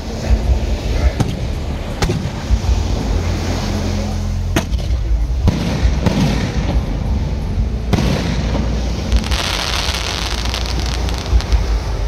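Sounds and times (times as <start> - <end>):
firework sparks crackling: 9.0 - 12.0.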